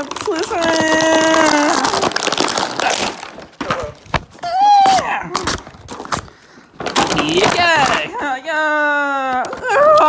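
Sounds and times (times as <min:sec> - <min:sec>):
plastic and cardboard crackling: 0:00.0 - 0:10.0.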